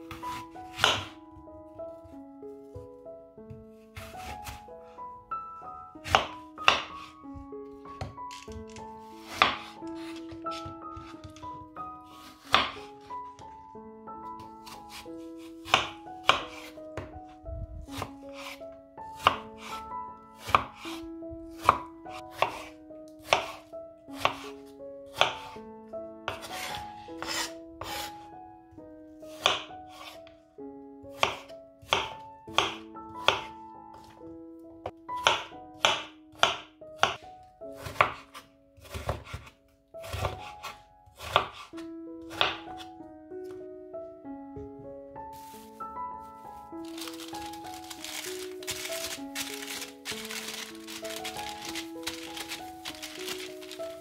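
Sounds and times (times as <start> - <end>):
soft background music: 0.0 - 54.0
knife striking cutting board: 0.3 - 1.2, 6.0 - 7.1, 8.0 - 11.4, 12.4 - 12.8, 46.9 - 54.0.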